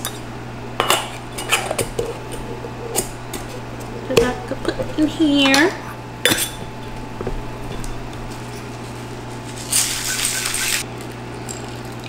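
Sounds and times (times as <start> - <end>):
ice rattling in cocktail shaker: 9.5 - 10.8
shaker clinks: 9.6 - 10.8.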